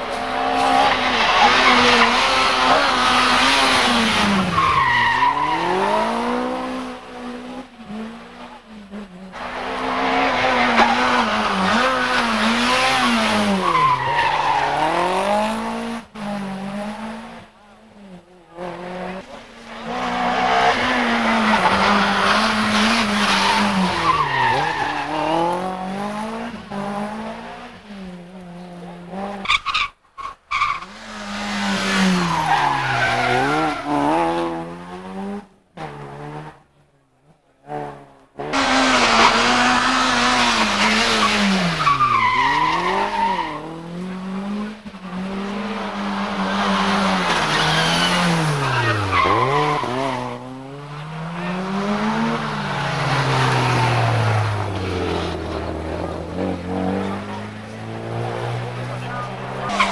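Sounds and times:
rally car engines revving: 0.0s - 59.9s.

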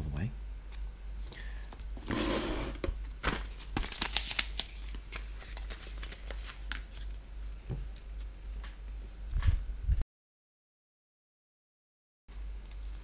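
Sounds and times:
paper sheets rustling and clicking: 2.1s - 7.2s.

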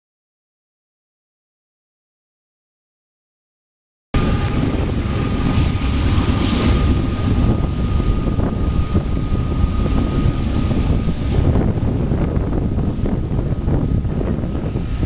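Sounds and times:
faint steady whine: 4.2s - 15.0s
wind buffeting microphone: 4.2s - 15.0s.

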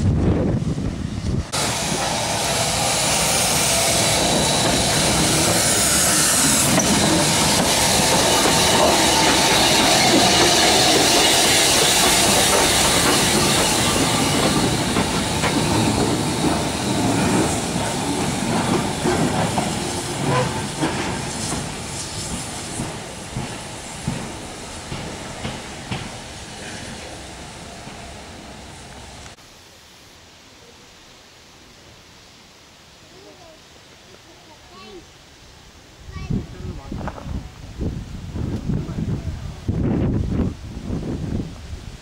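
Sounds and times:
steam hissing: 0.7s - 29.4s
train wheels clicking on rails: 1.5s - 29.4s.

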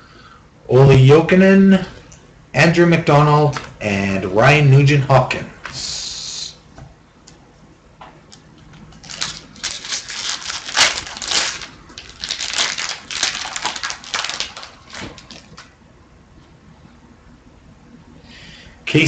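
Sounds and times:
foil wrapper crinkling: 8.3s - 15.7s.

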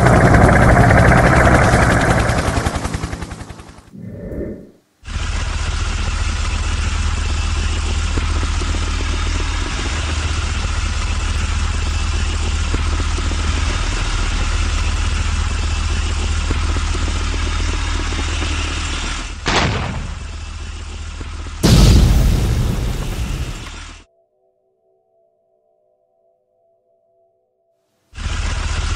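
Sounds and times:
short whoosh: 4.0s - 4.8s
heavy tank engine rumble: 5.1s - 24.0s
loud explosion blast: 19.5s - 20.3s, 21.6s - 23.9s.

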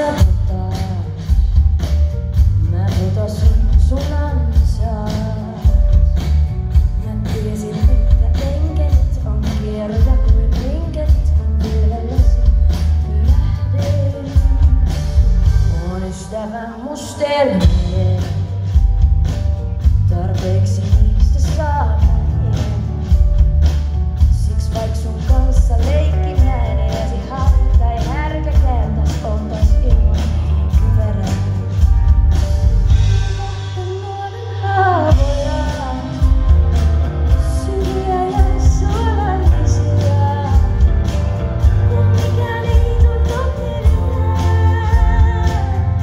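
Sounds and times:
drums: 0.0s - 46.0s
woman singing lead: 0.0s - 46.0s
electric bass guitar: 17.6s - 46.0s.

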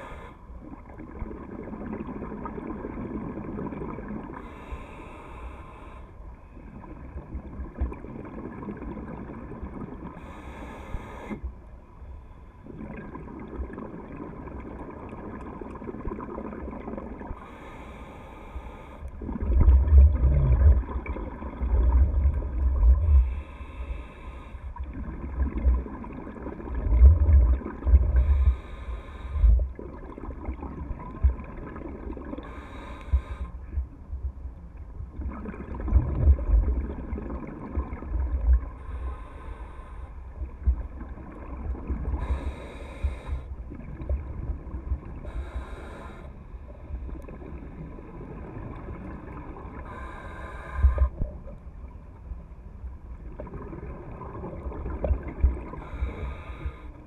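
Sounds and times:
regulator inhale hiss: 0.0s - 0.5s, 4.4s - 6.2s, 10.2s - 11.5s, 17.4s - 19.2s, 23.0s - 24.8s, 28.0s - 29.7s, 32.4s - 33.8s, 38.7s - 40.4s, 42.1s - 43.6s, 45.2s - 47.0s, 49.8s - 51.3s, 55.7s - 57.0s
exhaled bubbles rumbling: 0.6s - 4.4s, 6.6s - 10.3s, 12.6s - 17.5s, 19.2s - 24.1s, 24.7s - 39.3s, 40.3s - 45.8s, 46.8s - 50.2s, 53.0s - 56.8s.

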